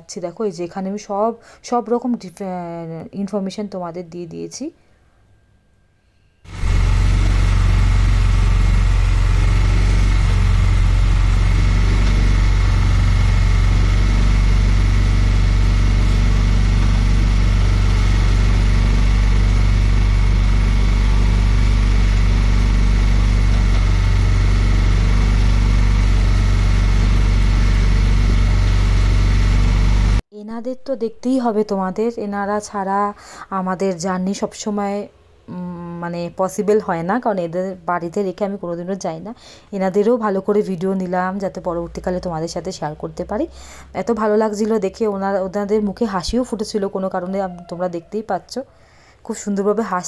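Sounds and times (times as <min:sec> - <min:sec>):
motorboat engine droning: 0:06.5 - 0:30.2.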